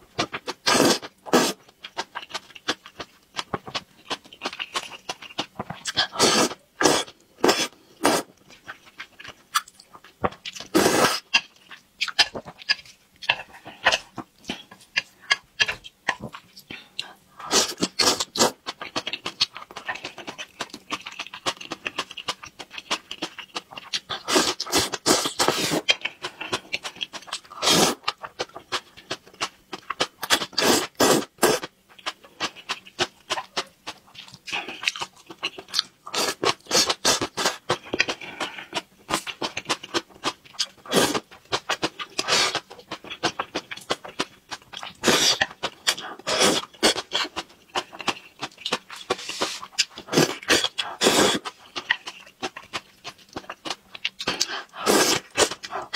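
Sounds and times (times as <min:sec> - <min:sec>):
slurping noodles: 0:00.7 - 0:01.6, 0:06.2 - 0:08.3, 0:10.7 - 0:11.2, 0:24.3 - 0:25.9, 0:27.6 - 0:28.0, 0:30.4 - 0:31.7, 0:45.0 - 0:47.3, 0:49.1 - 0:51.5, 0:54.3 - 0:55.9
wet smacking and chewing: 0:08.3 - 0:17.1, 0:17.8 - 0:55.9.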